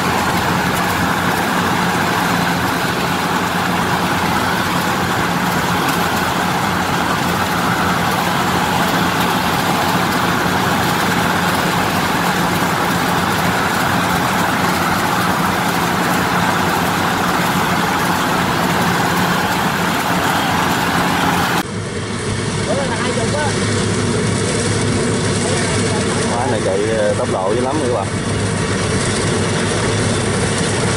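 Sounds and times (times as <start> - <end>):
combine harvester running: 0.0 - 30.9.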